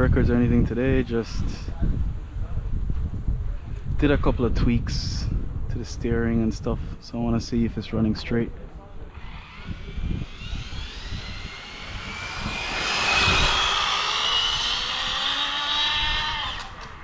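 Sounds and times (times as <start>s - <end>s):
electric motor whining: 9.1s - 17.0s.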